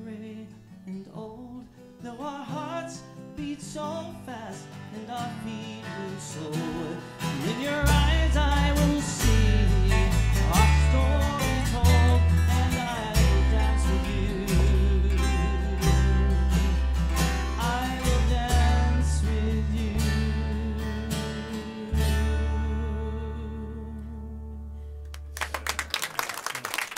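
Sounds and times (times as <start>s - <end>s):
strummed acoustic guitars: 0.0s - 25.8s
deep bass guitar notes: 7.7s - 25.5s.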